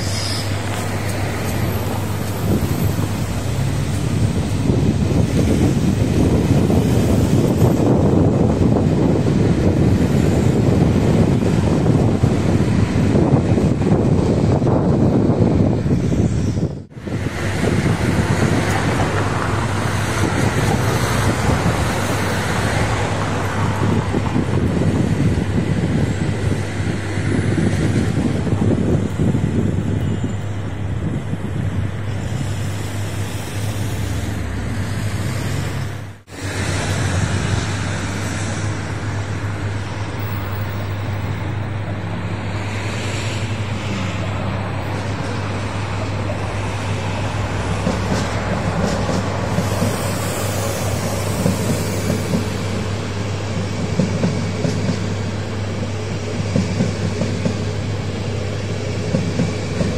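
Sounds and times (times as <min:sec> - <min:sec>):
train wheels clicking over rail joints: 0:00.0 - 0:08.4, 0:43.0 - 0:59.9
city traffic rumble: 0:00.0 - 0:59.9
train rolling past: 0:00.0 - 0:59.9.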